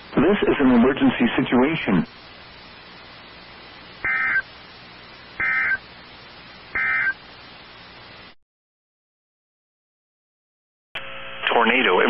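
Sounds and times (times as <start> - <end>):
steady low hiss: 0.0 - 8.4
digital data tone bursts: 4.0 - 4.5, 5.4 - 5.8, 6.8 - 7.2.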